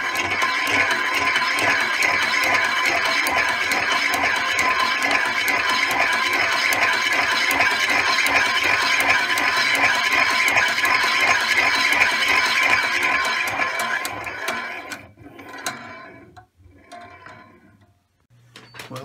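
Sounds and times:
engine fast clatter: 0.0s - 15.0s.

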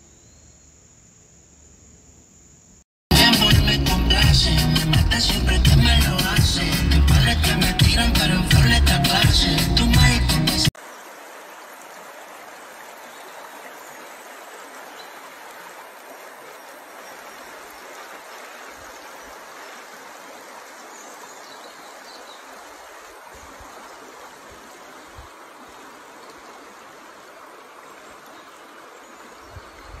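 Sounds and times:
river rushing over rocks: 10.8s - 29.5s.

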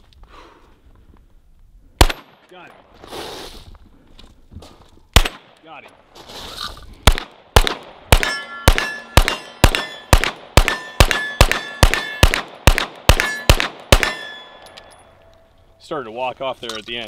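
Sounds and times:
pistol shots: 2.0s - 2.6s, 5.2s - 5.6s, 7.0s - 14.8s
metallic ring of steel targets: 8.1s - 12.4s, 13.1s - 15.6s.

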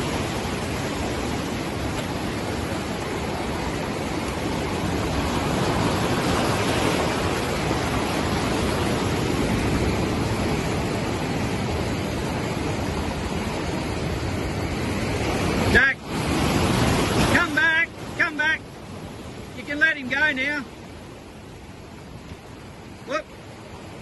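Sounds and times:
ocean surf breaking on rocks: 0.0s - 24.0s.

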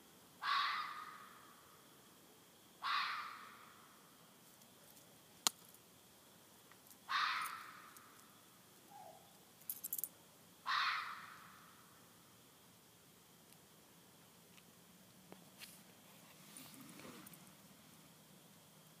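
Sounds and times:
harsh animal screams: 0.4s - 1.2s, 2.8s - 3.5s, 10.7s - 11.4s.

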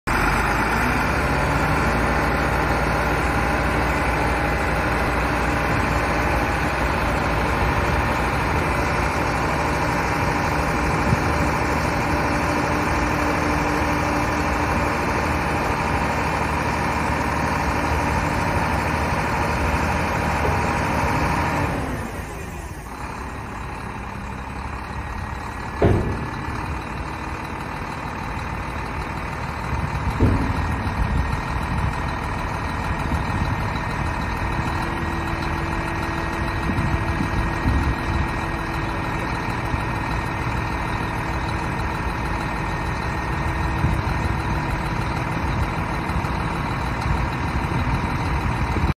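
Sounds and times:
diesel truck engine running: 0.1s - 48.9s
sharp metal clunks: 25.7s - 27.0s, 30.1s - 31.0s.

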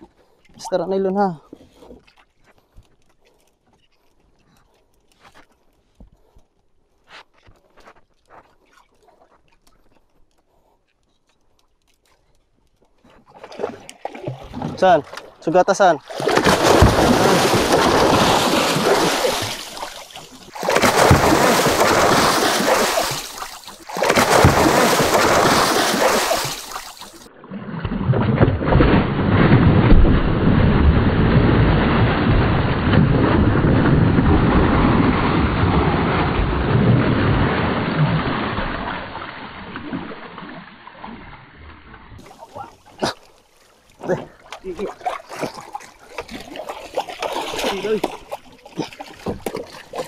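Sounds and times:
water splashing against a boat hull: 13.0s - 50.0s.

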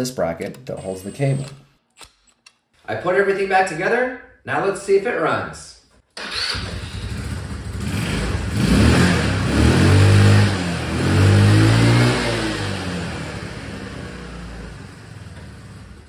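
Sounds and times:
scooter engine revving: 6.2s - 16.0s.

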